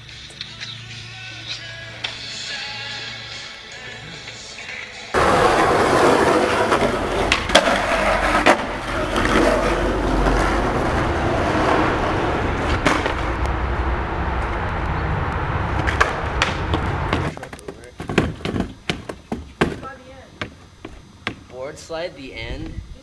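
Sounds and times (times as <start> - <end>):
skateboard wheels rolling on concrete: 0.0 - 23.0
skateboard clacks: 5.2 - 11.0.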